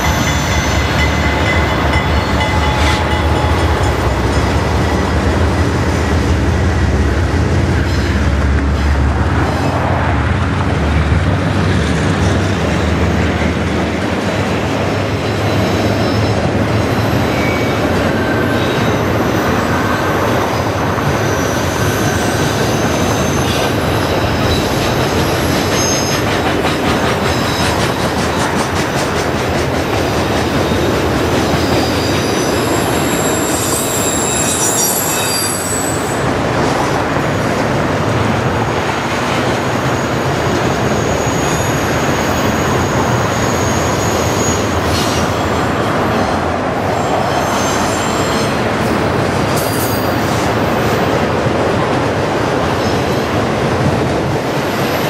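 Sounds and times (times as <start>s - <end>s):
train wheels rumbling and rattling: 0.0s - 55.0s
wheel squeals: 21.0s - 26.3s, 31.5s - 36.2s, 39.8s - 45.8s.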